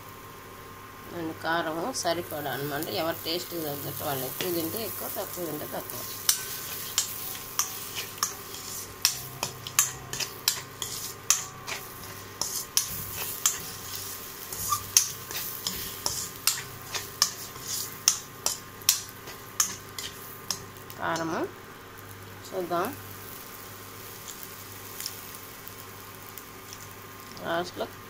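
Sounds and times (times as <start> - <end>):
faint frying sizzle: 0.0 - 28.0
metal spatula scraping a wok: 4.0 - 20.7.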